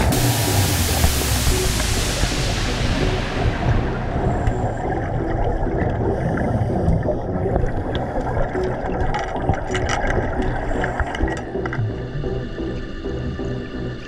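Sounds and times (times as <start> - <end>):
regulator breathing and bubbles: 0.0 - 14.0
clicks and knocks of gear: 8.6 - 11.8.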